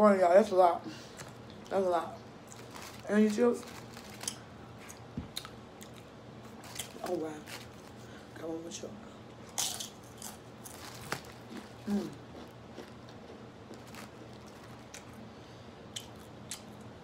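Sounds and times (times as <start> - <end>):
person chewing: 3.7 - 8.0, 9.5 - 15.3, 15.9 - 16.9.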